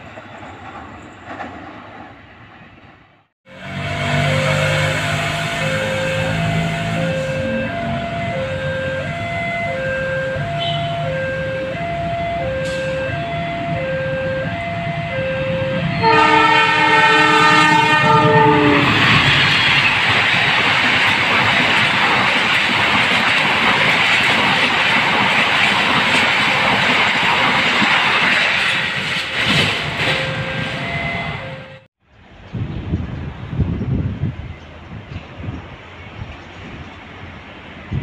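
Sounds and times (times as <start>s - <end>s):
train rumble and wheel clatter: 0.0s - 38.0s
locomotive horn blast: 3.5s - 19.3s
two-tone crossing warning bell: 3.5s - 20.8s, 25.2s - 28.3s, 28.9s - 31.9s.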